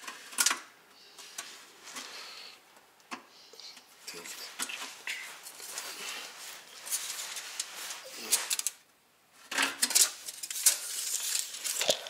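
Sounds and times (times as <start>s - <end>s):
tape measure clicking and rattling: 9.8s - 12.0s.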